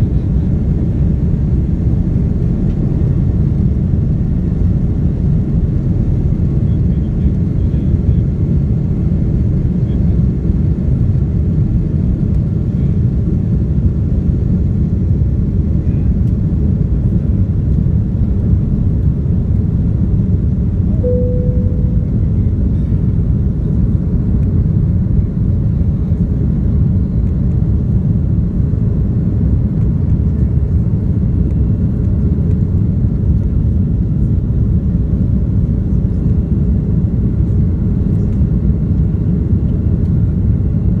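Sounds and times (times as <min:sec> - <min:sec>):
jet cabin engine rumble: 0:00.0 - 0:41.0
single cabin tone: 0:20.9 - 0:22.8.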